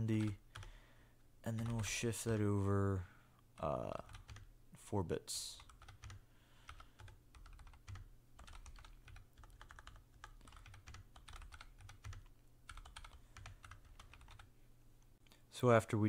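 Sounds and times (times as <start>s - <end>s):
computer keyboard typing: 0.0s - 0.7s, 1.5s - 2.1s, 3.6s - 4.5s, 5.6s - 14.5s.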